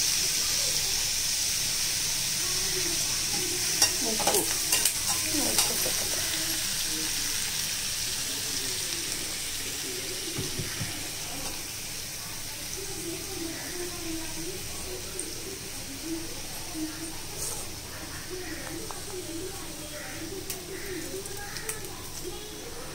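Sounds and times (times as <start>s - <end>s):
vegetables sizzling in oil: 0.0s - 22.9s
metal spatula scraping pan: 3.3s - 6.2s.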